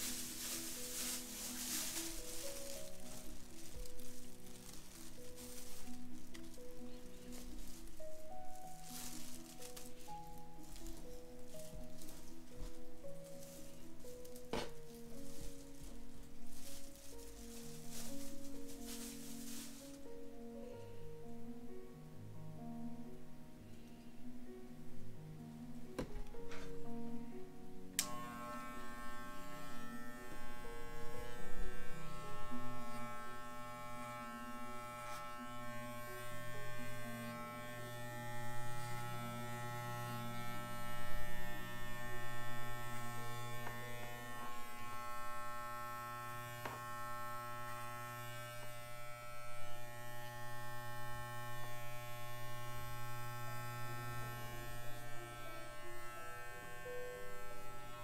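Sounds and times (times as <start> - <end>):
electric pet clippers buzzing: 28.0 - 58.0.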